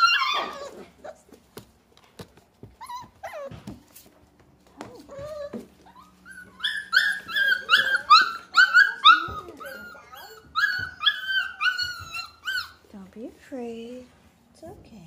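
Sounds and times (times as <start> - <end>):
puppies yipping and whining: 0.0 - 1.5, 2.6 - 4.1, 4.8 - 12.9.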